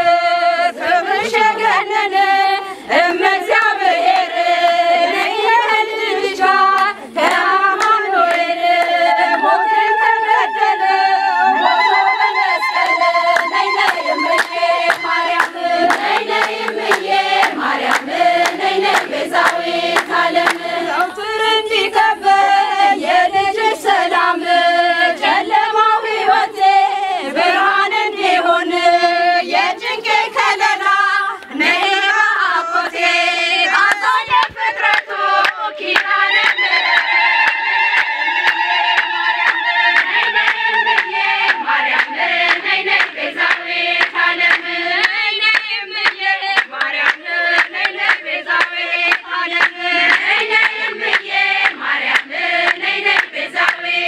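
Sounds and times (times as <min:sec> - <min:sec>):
women singing a hymn: 0:00.0 - 0:54.0
people clapping in time: 0:02.9 - 0:21.4, 0:33.6 - 0:54.0
high wavering voice: 0:09.2 - 0:15.3.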